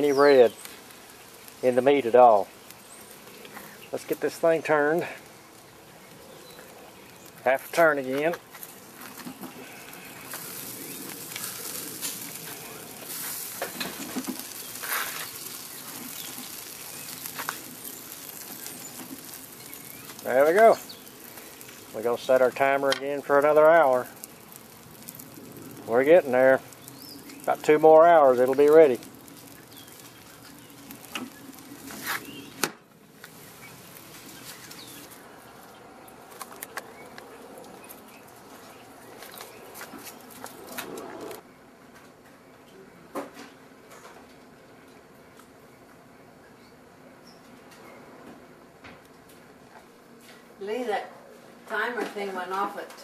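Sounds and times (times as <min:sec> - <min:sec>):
fat dripping onto hot coals: 0:00.0 - 0:41.4
meat sizzling on a grill: 0:00.0 - 0:41.4
outdoor background noise: 0:00.0 - 0:53.0.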